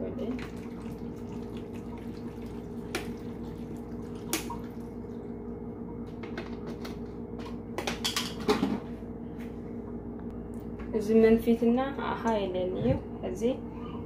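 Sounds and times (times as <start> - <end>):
steady hum: 0.0 - 14.0
water pouring into blender jar: 0.2 - 5.1.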